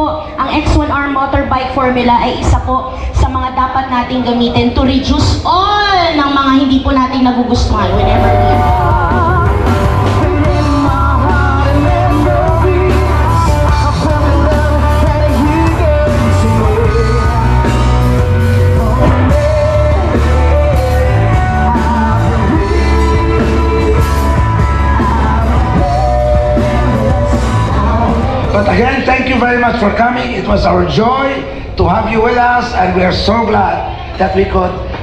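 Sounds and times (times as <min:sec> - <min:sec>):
rock song with singing: 0:07.6 - 0:35.0
heavy bass line: 0:07.7 - 0:31.0.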